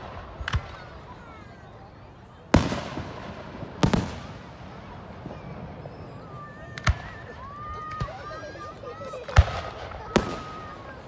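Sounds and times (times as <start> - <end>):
fireworks crackling: 0.0 - 11.0
firework bangs with rumbling echo: 2.5 - 6.1, 6.7 - 8.1, 9.2 - 10.9
firework whistles: 5.1 - 8.5.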